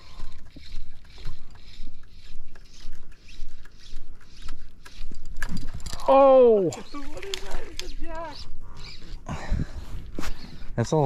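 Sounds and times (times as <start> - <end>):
fly line swishing: 0.0 - 5.8.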